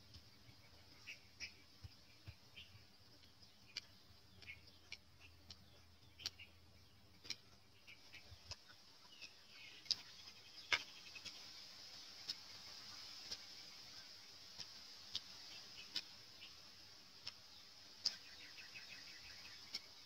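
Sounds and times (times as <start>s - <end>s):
faint high hiss: 7.8s - 20.0s.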